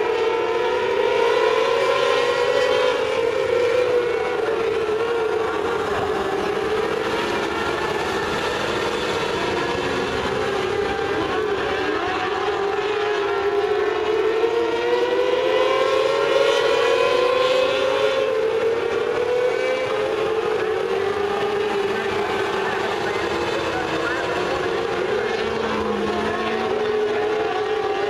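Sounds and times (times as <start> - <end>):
racing car engines whining: 0.0 - 28.0.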